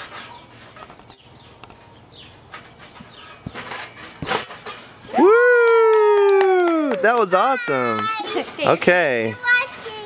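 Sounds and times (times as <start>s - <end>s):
trampoline thumps: 2.2s - 5.5s.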